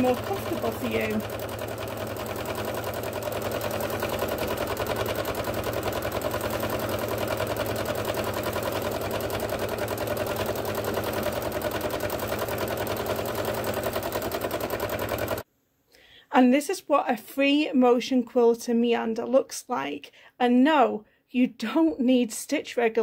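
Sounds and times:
sewing machine running: 0.0 - 15.4.

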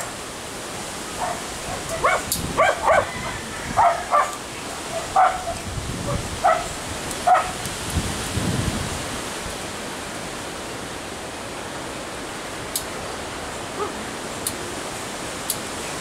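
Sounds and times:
steady background hiss: 0.0 - 16.0
dog yipping: 1.2 - 4.4, 5.0 - 6.7, 7.3 - 7.6.

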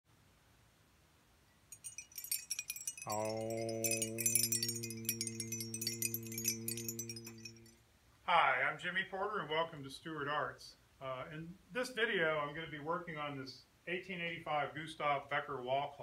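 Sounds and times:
glass wind chime tinkling: 1.5 - 7.8.

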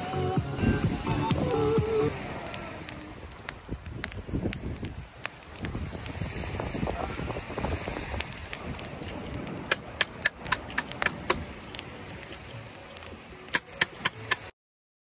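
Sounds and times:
campfire crackling and popping: 0.4 - 14.5
flames rushing: 0.6 - 14.5.

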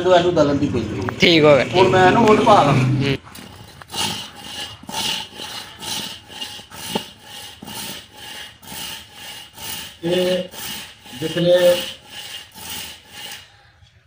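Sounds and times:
hand saw cutting log: 3.2 - 13.6.

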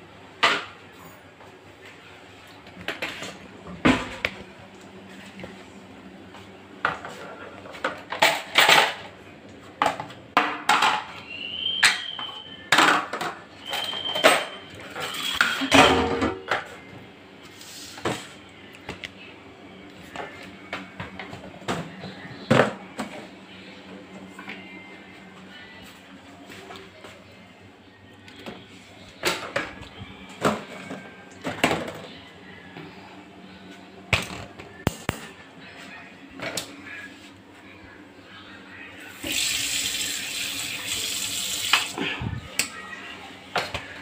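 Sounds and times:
utensils pots and plates clattering: 6.9 - 9.2, 11.8 - 16.8.

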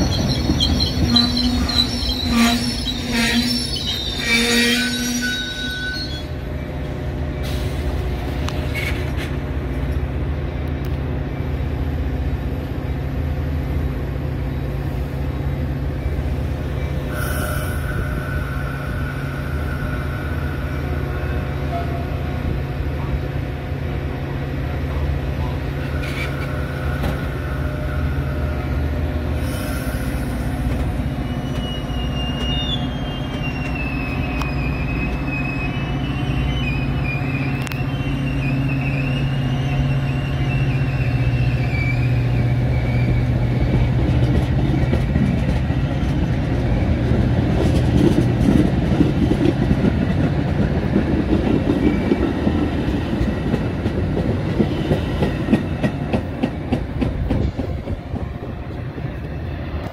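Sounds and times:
wheel squeal: 0.0 - 6.4, 31.0 - 45.6
train rolling past: 0.0 - 59.9.

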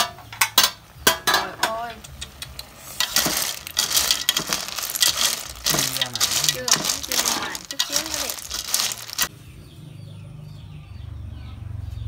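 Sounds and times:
snail shells clattering in a pot: 2.6 - 9.3
metal pot lid clanking: 3.0 - 8.1.

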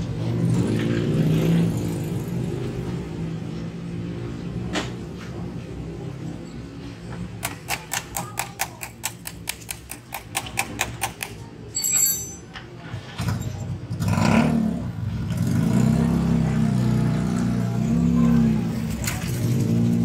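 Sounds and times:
high jingle: 11.7 - 12.5
vehicle engine revving: 14.0 - 20.0.

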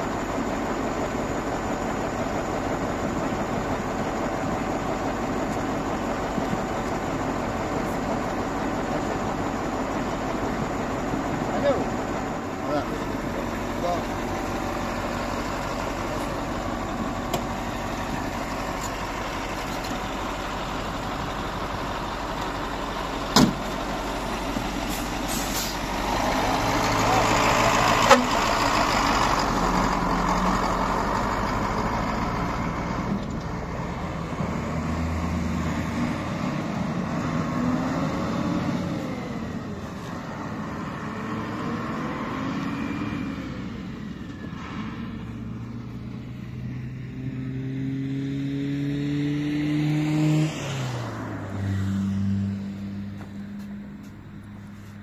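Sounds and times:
vehicle engine revving: 23.5 - 54.5.

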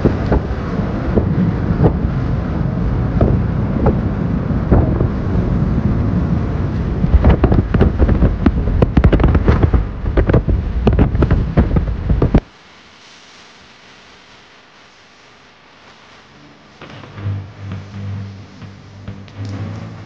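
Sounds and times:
road and wind noise: 0.0 - 12.5
wind buffeting through window: 0.0 - 12.5.

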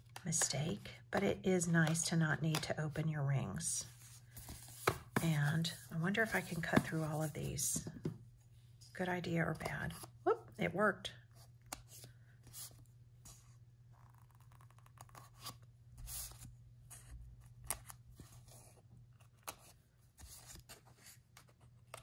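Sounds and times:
low steady hum: 0.0 - 21.5
paper rustling: 3.9 - 7.6.

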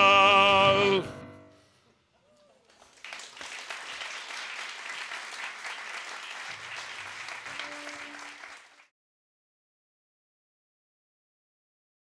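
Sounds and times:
audience applauding: 2.4 - 8.9.

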